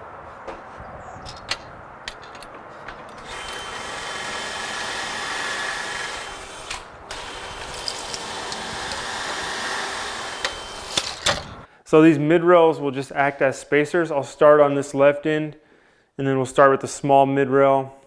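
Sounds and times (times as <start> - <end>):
cordless drill boring into wood: 3.2 - 11.6.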